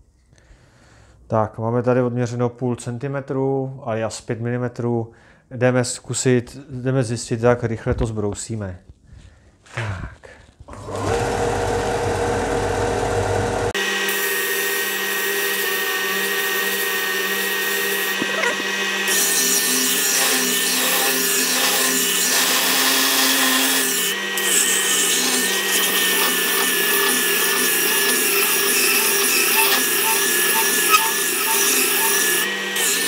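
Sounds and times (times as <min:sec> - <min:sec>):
belt sander grinding wood: 0:10.7 - 0:33.0.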